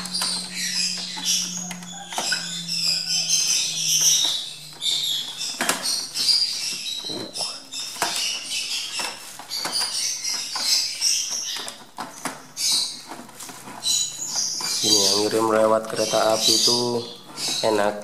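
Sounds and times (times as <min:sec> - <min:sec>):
lovebirds chirping: 0:00.0 - 0:18.0
paper and plastic rustling: 0:00.0 - 0:18.0.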